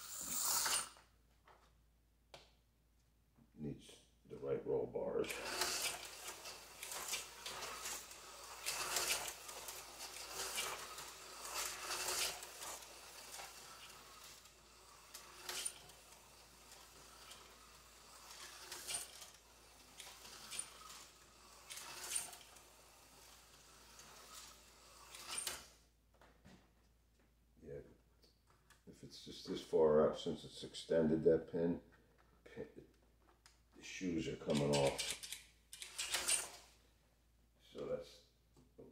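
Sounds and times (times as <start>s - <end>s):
slot car motor whirring: 0.0s - 0.9s, 5.3s - 25.7s, 34.5s - 36.7s.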